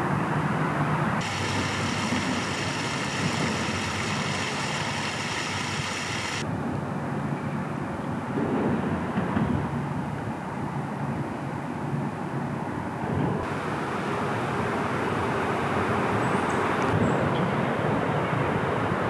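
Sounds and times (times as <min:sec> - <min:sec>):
water gushing from pipe: 0:01.2 - 0:06.4.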